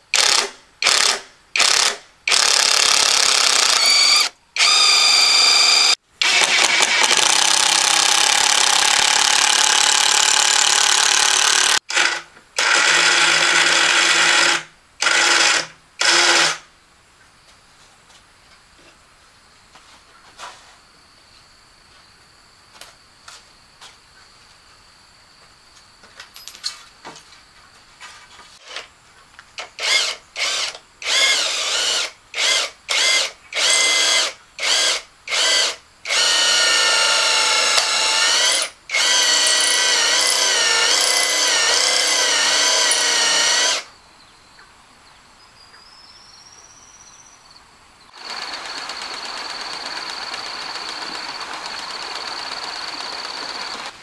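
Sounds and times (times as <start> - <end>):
electric drill whining: 0.2 - 16.6, 29.7 - 43.9, 48.2 - 54.0.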